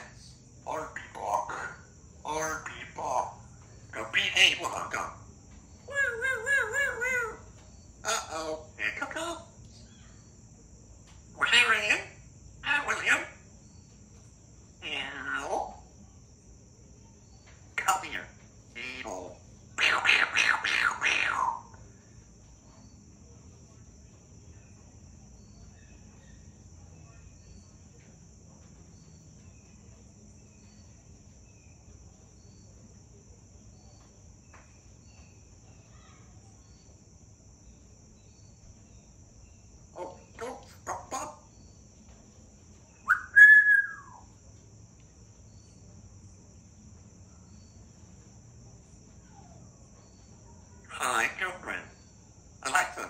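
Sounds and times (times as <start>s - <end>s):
parrot whistling: 43.1s - 44.2s.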